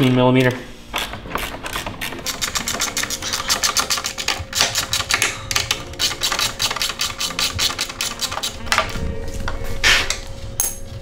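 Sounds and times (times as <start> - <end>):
ratchet wrench clicking: 6.0 - 8.6.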